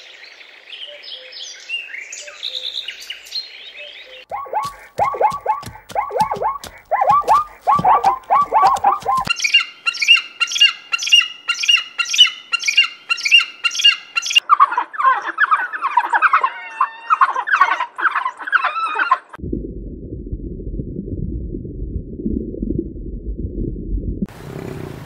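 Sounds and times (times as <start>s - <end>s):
chirps and twitters: 2.2s - 16.2s
high ringing animal calls: 4.2s - 19.1s
animal yelps: 4.3s - 19.4s.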